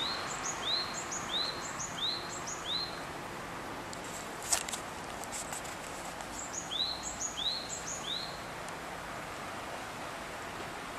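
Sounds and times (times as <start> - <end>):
songbird chirping: 0.0 - 4.0, 4.6 - 8.8
background hiss: 0.0 - 10.9.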